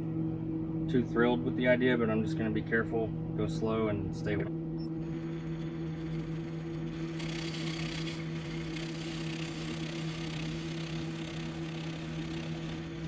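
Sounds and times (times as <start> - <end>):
metal lathe humming: 5.0 - 13.0
lathe tool cutting metal hiss: 6.8 - 13.0.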